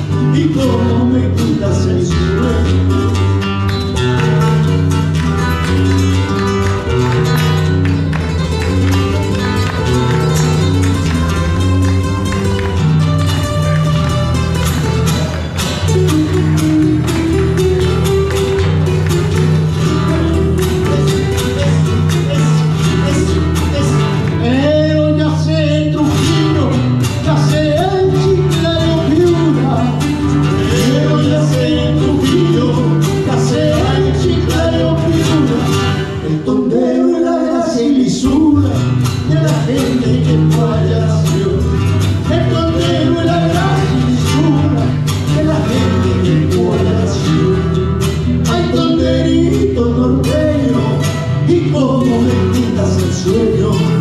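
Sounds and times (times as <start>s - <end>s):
man singing into a microphone: 0.0s - 3.2s, 19.9s - 54.0s
acoustic guitars playing: 0.0s - 54.0s.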